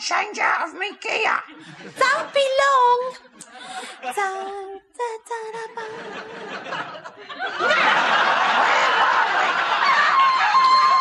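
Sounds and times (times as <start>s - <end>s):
studio audience laughing: 1.5s - 2.6s, 5.8s - 11.0s.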